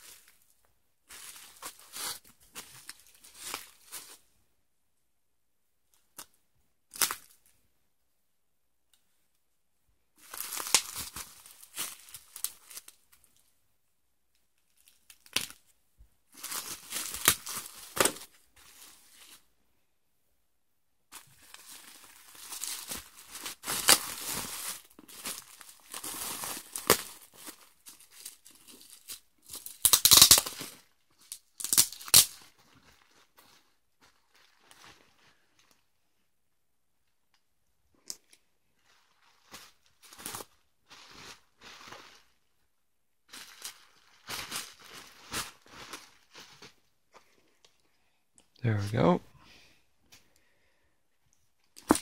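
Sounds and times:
wrapping crinkling: 1.1s - 4.2s, 10.2s - 13.5s, 16.3s - 19.5s, 21.1s - 35.9s, 38.7s - 42.6s, 43.2s - 47.6s
packing tape ripping: 29.6s - 30.7s, 31.6s - 32.4s.

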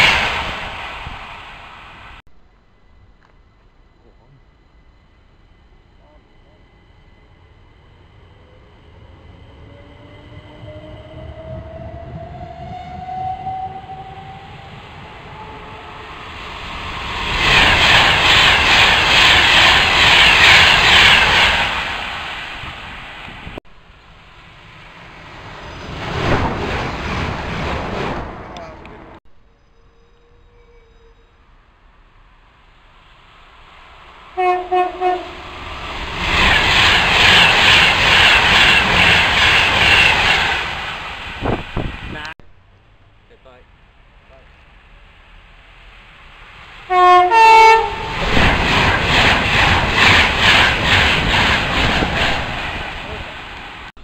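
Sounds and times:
train passing at speed: 0.0s - 2.2s, 4.6s - 54.0s
train horn blasts: 12.6s - 14.6s, 34.4s - 35.4s, 46.9s - 48.2s.

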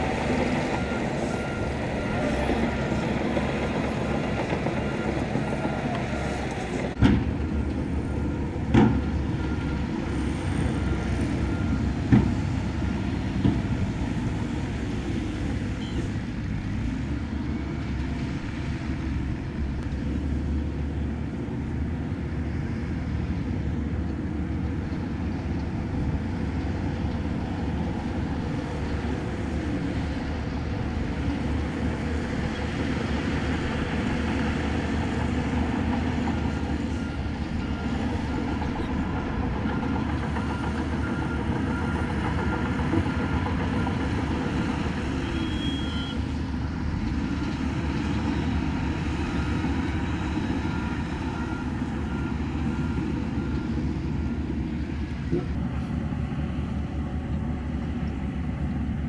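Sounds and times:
faint reversing alarm beeps: 0.0s - 6.8s, 7.6s - 13.4s, 33.5s - 46.3s, 47.1s - 55.0s
diesel machinery engines running: 0.0s - 59.0s.

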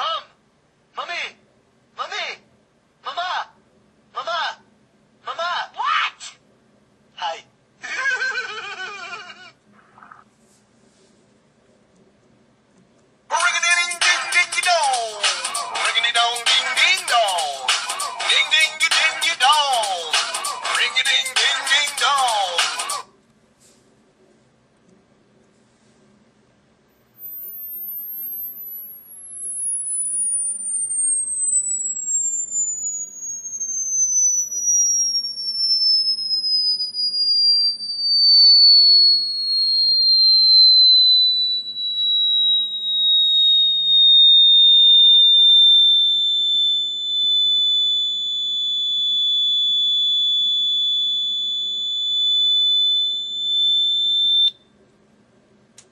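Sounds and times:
phone ringtone sliding electronic tone: 13.4s - 23.0s, 27.2s - 36.1s.

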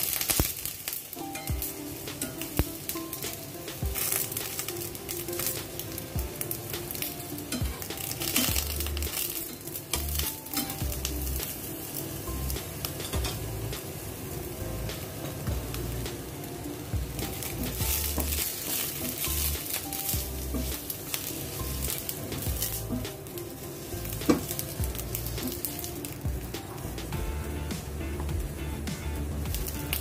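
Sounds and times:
vegetables sizzling in hot oil: 0.0s - 30.0s
metal tongs clicking against pan: 0.1s - 6.0s, 6.8s - 11.5s.

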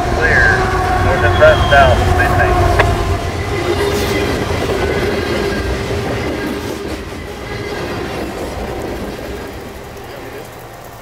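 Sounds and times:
train wheels clattering over rail joints: 2.8s - 11.0s.

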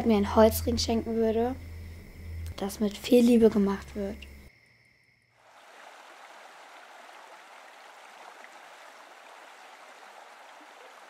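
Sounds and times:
outdoor rushing hiss: 5.4s - 11.0s.

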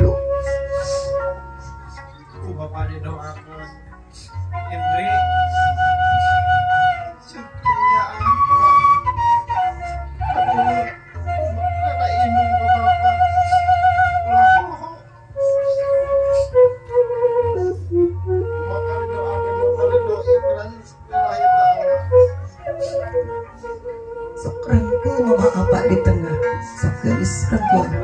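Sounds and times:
slow flute melody: 0.0s - 28.0s.

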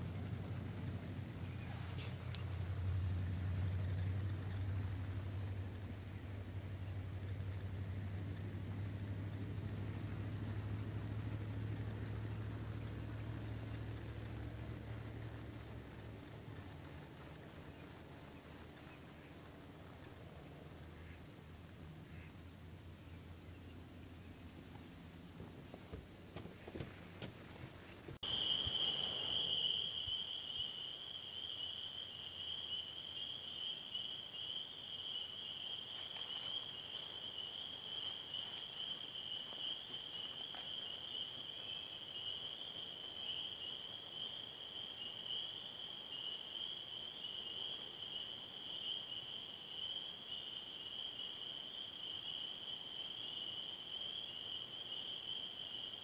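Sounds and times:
crickets trilling: 28.2s - 56.0s.

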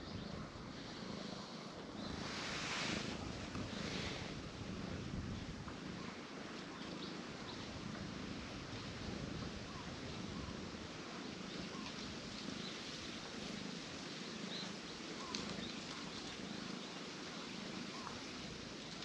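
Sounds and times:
cat purring: 0.0s - 19.0s
faint bird chirps: 5.3s - 7.7s, 9.6s - 18.3s.

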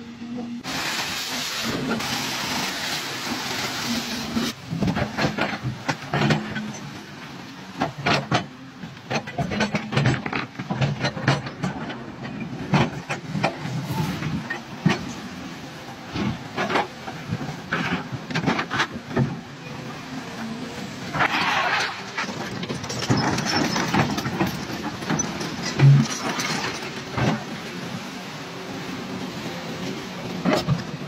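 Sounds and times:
excavator diesel engine: 0.0s - 31.0s
rushing splashing water: 0.6s - 4.9s.

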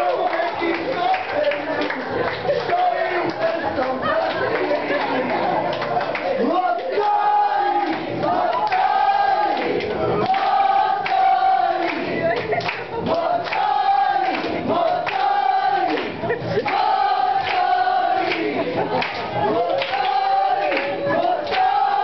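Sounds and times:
crowd singing along: 6.3s - 22.0s.

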